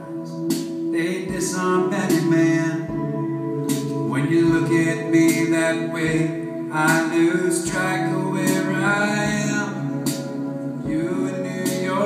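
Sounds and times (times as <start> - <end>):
steady beat: 0.0 - 10.3, 10.9 - 12.0
guitar: 0.0 - 12.0
man singing: 0.9 - 3.2, 4.0 - 12.0.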